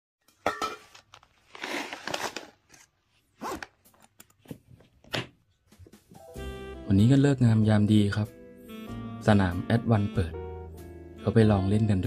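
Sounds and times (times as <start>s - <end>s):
backpack fabric rustling: 1.4s - 4.8s.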